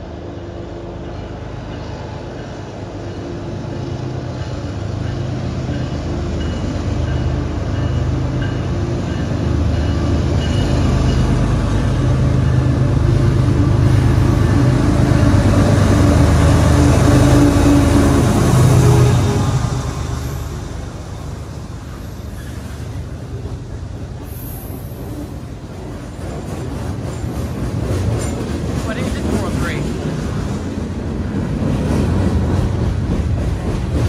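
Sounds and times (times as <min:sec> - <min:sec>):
diesel locomotive engine drone: 0:00.0 - 0:34.0.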